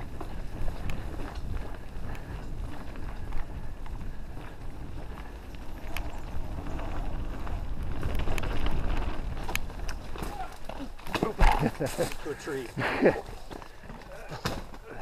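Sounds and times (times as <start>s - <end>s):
wind buffeting a microphone: 0.0s - 10.5s.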